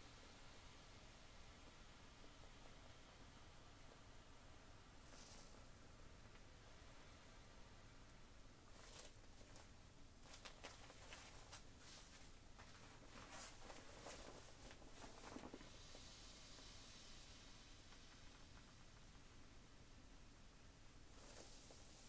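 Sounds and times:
faint steady hiss: 0:00.0 - 0:22.0
plastic inflatable crinkling: 0:08.7 - 0:16.1.

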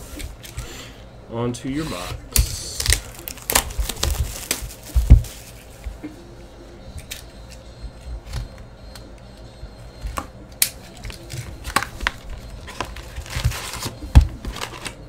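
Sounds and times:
cardboard box rustling and scraping: 0:12.6 - 0:15.0.

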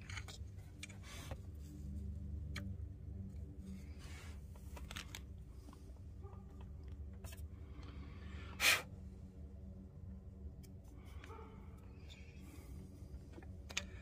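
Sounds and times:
metal parts clicking and scraping: 0:00.0 - 0:01.4, 0:04.4 - 0:05.8, 0:10.6 - 0:14.0
low background hum: 0:00.0 - 0:14.0.

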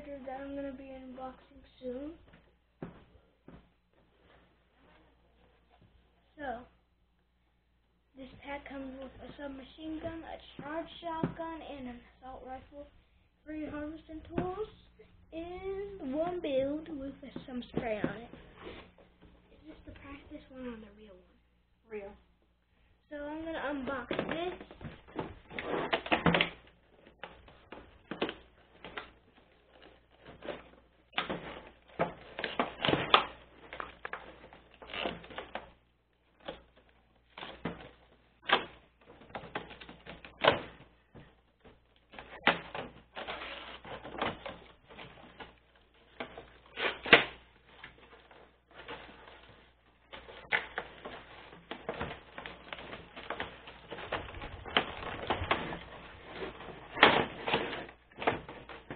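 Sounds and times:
plastic and cardboard packaging crinkling: 0:23.4 - 0:58.9.

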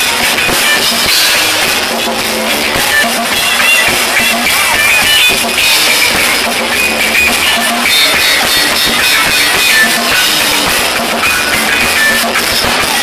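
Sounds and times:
drum kit: 0:00.0 - 0:13.0
live band playing loud music: 0:00.0 - 0:13.0.

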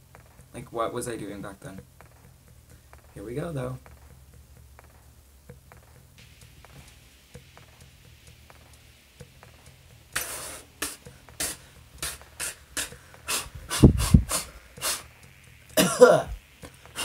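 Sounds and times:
person blowing short puffs of air: 0:10.2 - 0:15.1.

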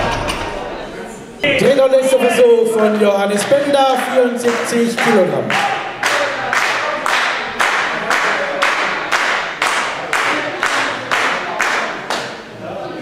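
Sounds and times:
audience clapping in unison: 0:02.7 - 0:12.4.

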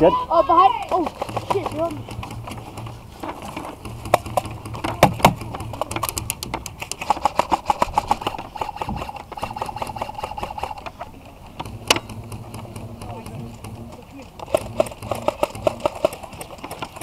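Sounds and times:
airsoft gunfire: 0:00.8 - 0:02.9, 0:06.9 - 0:10.8, 0:14.4 - 0:16.9.

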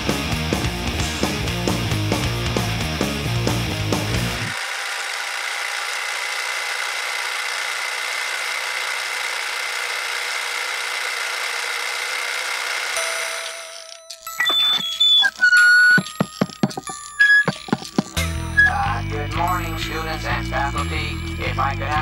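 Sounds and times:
film projector whirring: 0:04.4 - 0:18.2
high whine: 0:14.3 - 0:19.0.

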